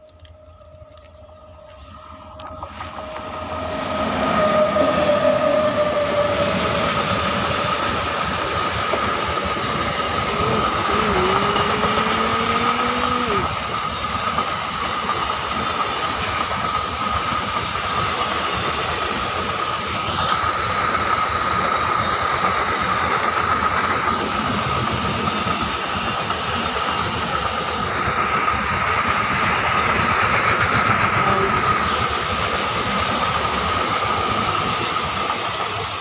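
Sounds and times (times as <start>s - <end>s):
high whine: 0.0s - 14.1s
freight train wheels rumbling: 0.0s - 36.0s.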